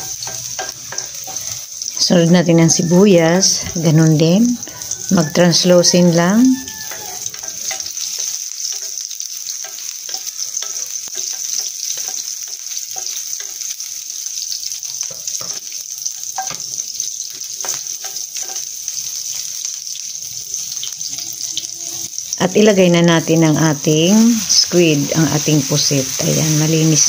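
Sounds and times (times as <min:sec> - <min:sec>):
spatula scraping pan: 0:00.0 - 0:01.9, 0:03.5 - 0:13.8, 0:15.0 - 0:19.5
onion sizzling in hot oil: 0:00.0 - 0:27.0.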